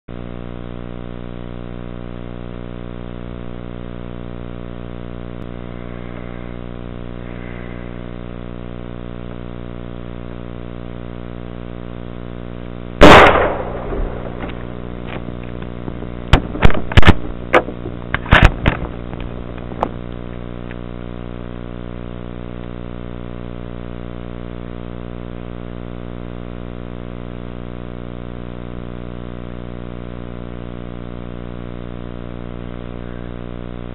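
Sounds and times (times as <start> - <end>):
steady low hum: 0.1 - 33.9
rifle shot with echo: 13.0 - 18.9.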